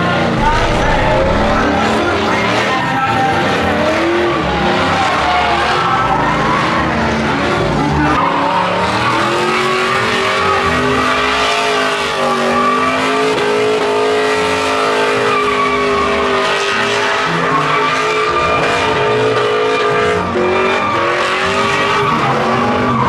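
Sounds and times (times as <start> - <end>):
truck engine revving high: 0.3 - 2.8.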